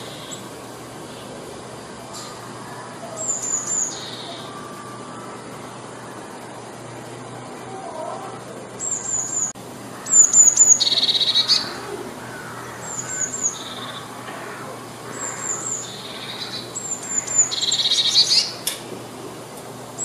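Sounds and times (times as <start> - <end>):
blue tit singing: 0.0 - 1.4, 2.2 - 5.3, 8.8 - 18.7.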